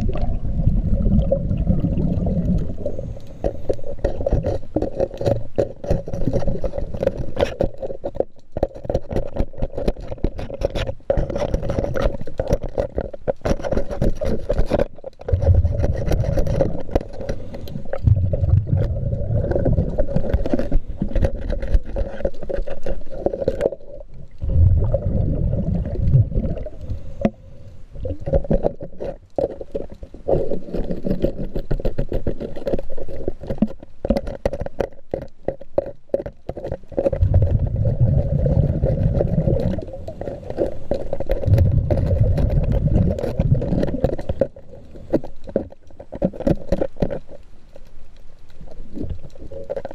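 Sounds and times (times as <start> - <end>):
underwater bubbling breath: 0.0 - 5.2, 15.4 - 31.6, 36.9 - 45.3
scraper clicking and scraping hull: 2.2 - 24.5, 28.0 - 47.9.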